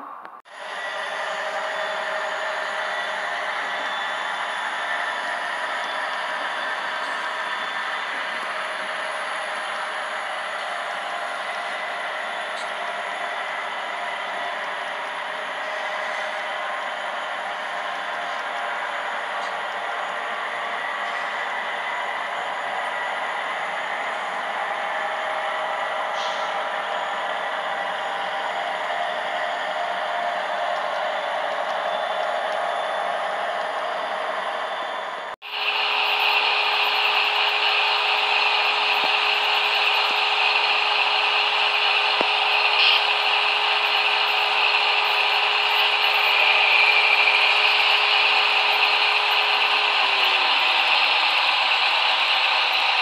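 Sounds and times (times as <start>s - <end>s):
model locomotive passing: 0.0s - 53.0s
constant motor hum: 0.5s - 53.0s
model train wheels clattering: 35.7s - 53.0s.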